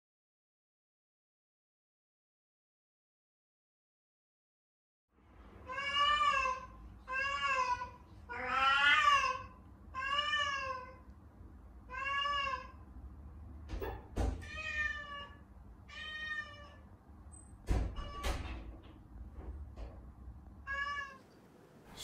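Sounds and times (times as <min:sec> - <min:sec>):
cat meowing: 0:05.6 - 0:11.0, 0:11.9 - 0:12.8, 0:14.4 - 0:16.9, 0:20.7 - 0:21.2.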